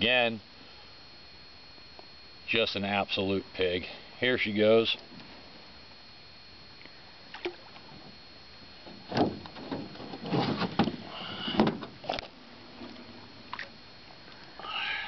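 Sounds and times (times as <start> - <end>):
water splashing: 7.3 - 8.2, 11.9 - 14.2.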